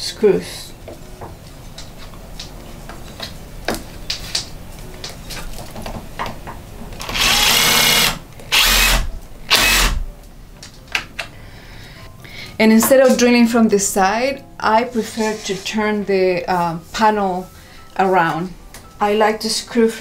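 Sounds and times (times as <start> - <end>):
cordless drill driving screw: 7.0 - 10.0.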